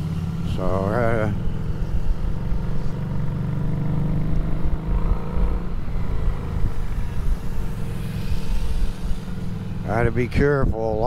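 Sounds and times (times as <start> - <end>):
motorcycle engine rumbling: 0.0 - 11.0.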